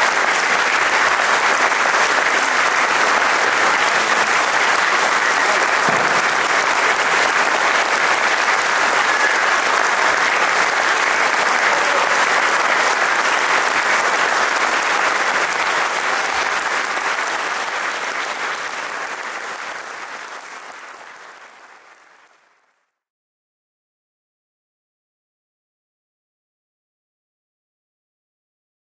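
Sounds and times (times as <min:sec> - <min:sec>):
audience applauding: 0:00.0 - 0:22.9.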